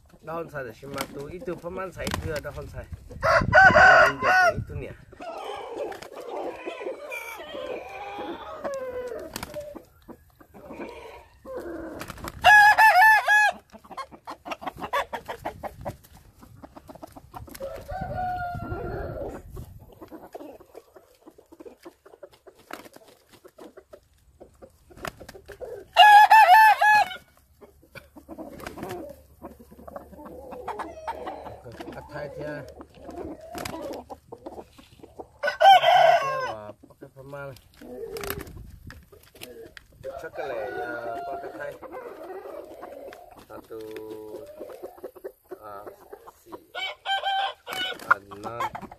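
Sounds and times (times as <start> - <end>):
chickens clucking: 0.0 - 48.9
rooster crowing: 3.2 - 4.6, 12.4 - 13.6, 17.6 - 19.4, 26.0 - 27.2, 35.4 - 36.6, 40.0 - 42.6, 46.8 - 48.0.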